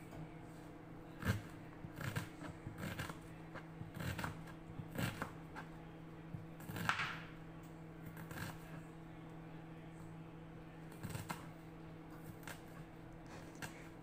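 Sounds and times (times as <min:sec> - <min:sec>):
knife chopping on cutting board: 0:03.8 - 0:05.7, 0:06.6 - 0:07.2.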